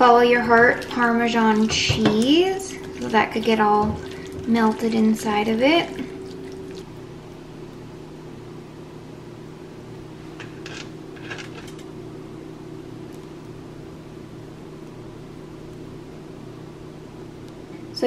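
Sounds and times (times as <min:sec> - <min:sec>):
appliance humming: 0:00.0 - 0:18.0.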